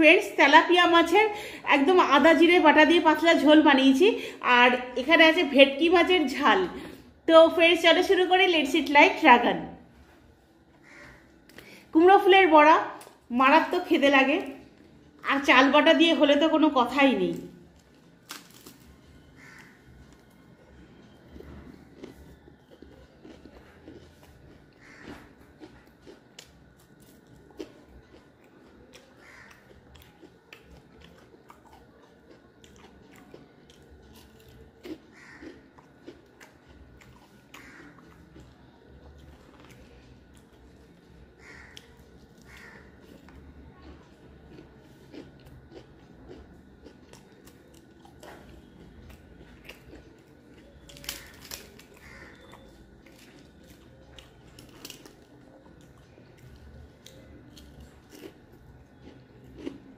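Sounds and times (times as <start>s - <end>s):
chewing: 17.4s - 59.9s
crisp crunching bites: 17.7s - 40.8s, 41.4s - 59.9s.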